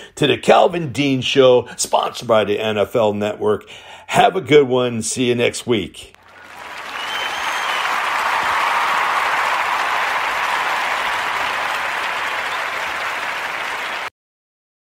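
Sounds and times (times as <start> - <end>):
crowd applauding: 6.2 - 14.1
person whistling: 6.9 - 8.0.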